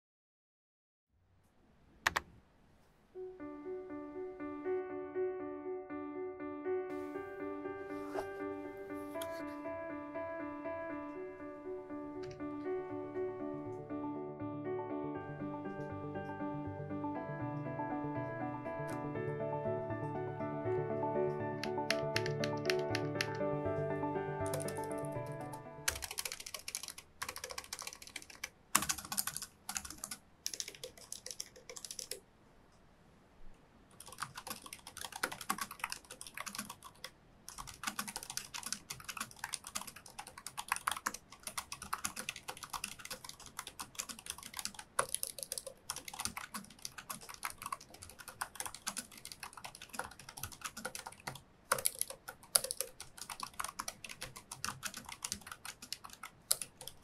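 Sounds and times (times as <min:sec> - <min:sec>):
typing on keyboard: 0:21.0 - 0:32.2, 0:33.9 - 0:57.0.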